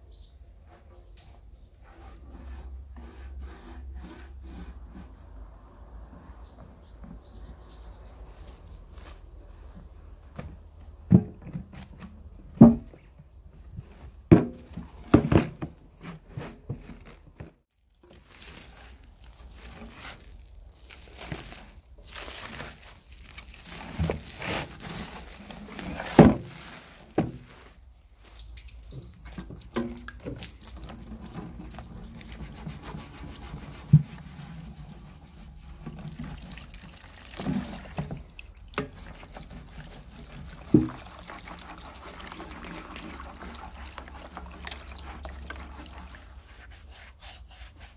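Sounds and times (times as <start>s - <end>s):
cling film crinkling: 16.8s - 29.0s
brush scrubbing lid: 30.2s - 36.6s, 37.3s - 47.9s.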